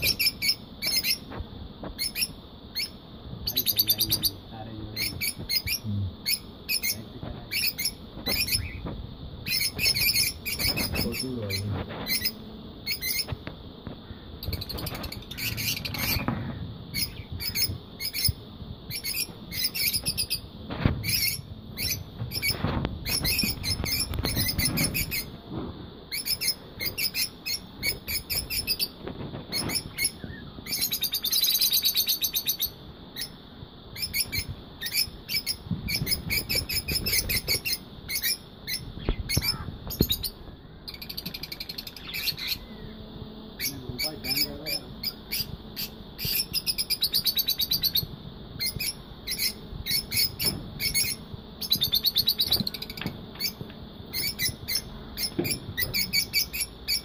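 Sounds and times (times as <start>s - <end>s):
lovebirds chirping: 0.0s - 57.0s.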